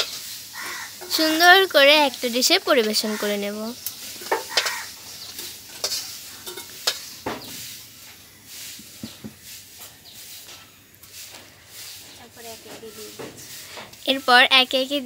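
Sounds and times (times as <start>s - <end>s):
light sizzle of hot oil: 0.0s - 15.0s
metallic clinks and scrapes: 3.9s - 7.7s.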